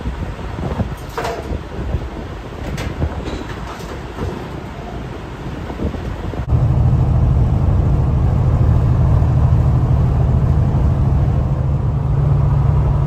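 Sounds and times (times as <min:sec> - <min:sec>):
diesel truck engine droning: 0:06.2 - 0:13.0.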